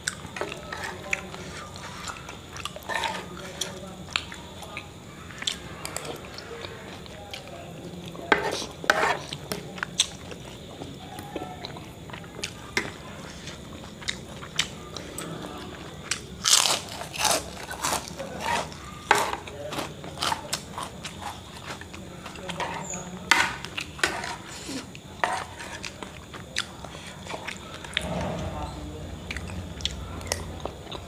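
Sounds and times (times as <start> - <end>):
person chewing food: 0.0 - 8.2, 13.4 - 22.5
cutlery scraping ceramic plate: 2.8 - 3.3, 8.3 - 9.3, 18.4 - 19.5, 25.2 - 25.9.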